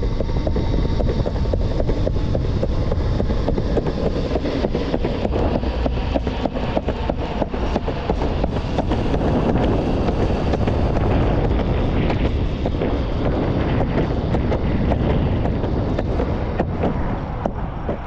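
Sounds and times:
skateboard wheels rolling on pavement: 0.0s - 18.0s
wind buffeting microphone: 0.0s - 18.0s.

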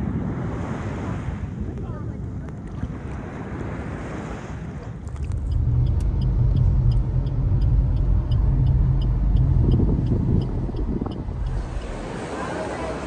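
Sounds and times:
car engine and road rumble: 4.9s - 13.0s.

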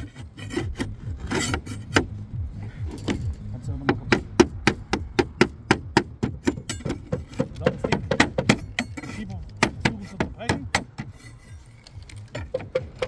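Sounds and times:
scraping: 0.0s - 4.9s, 6.3s - 13.0s
hammer striking metal: 2.9s - 11.5s.

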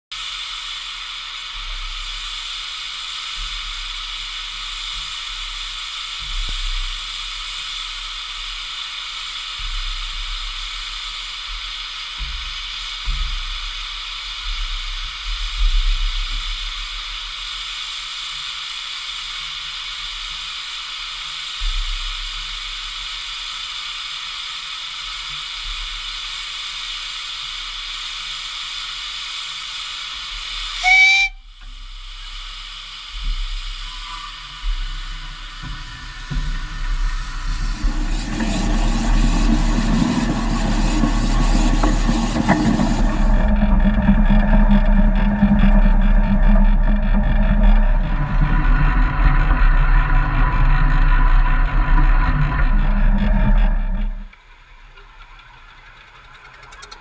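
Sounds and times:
steam hissing: 0.1s - 55.0s
low rumbles: 33.3s - 56.3s.

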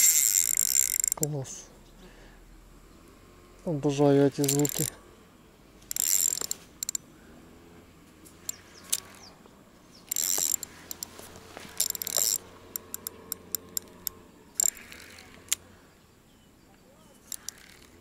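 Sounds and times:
fishing reel clicks: 0.0s - 1.3s, 4.4s - 5.0s, 5.9s - 7.1s, 8.4s - 9.3s, 10.0s - 15.6s, 17.2s - 18.0s
fishing reel drag buzzing: 0.0s - 1.3s, 4.4s - 5.0s, 5.8s - 7.7s, 8.3s - 9.3s, 9.9s - 15.7s, 17.2s - 18.0s.

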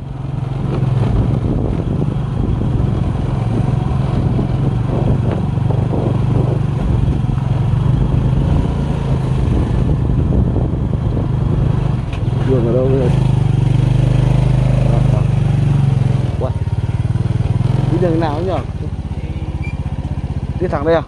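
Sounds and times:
vehicle engine running: 0.0s - 21.0s.

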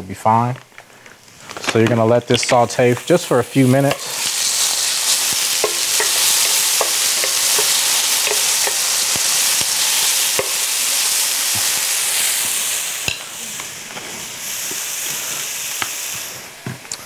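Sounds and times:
onion sizzling in oil: 2.0s - 17.0s
wooden spoon scraping a pan: 2.5s - 9.2s.

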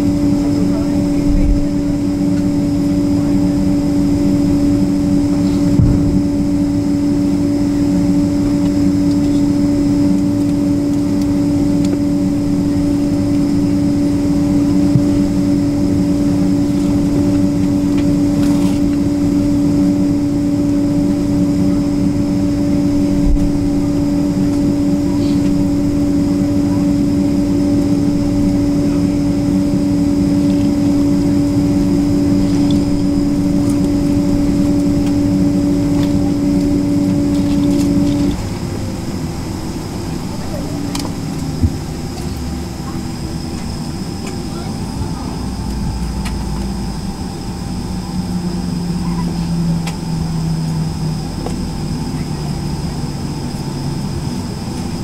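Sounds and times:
aircraft cabin drone: 0.0s - 55.0s
faint low bumps: 5.4s - 6.8s.

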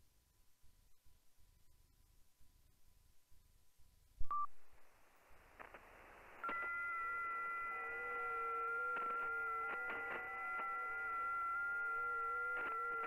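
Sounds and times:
receiver hiss: 4.2s - 13.0s
static clicks: 4.2s - 13.0s
digital radio signal tones: 5.6s - 13.0s.

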